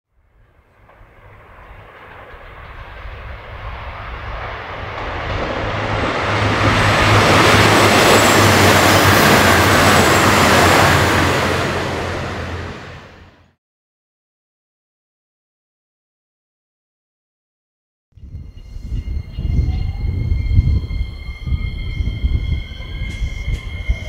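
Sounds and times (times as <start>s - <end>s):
train passing with low hum: 0.2s - 13.6s, 18.2s - 24.0s
faint high whine: 18.2s - 24.0s.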